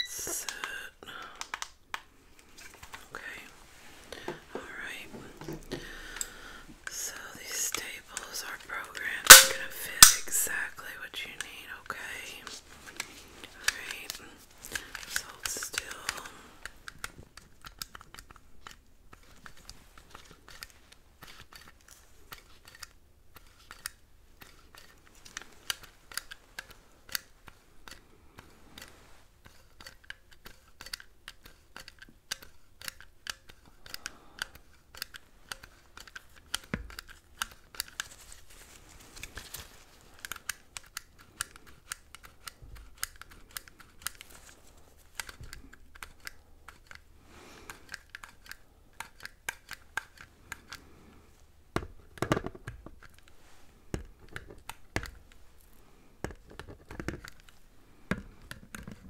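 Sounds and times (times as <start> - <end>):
soft rustling: 2.2 - 9.2, 35.2 - 40.8, 42.2 - 47.6, 53.0 - 54.0.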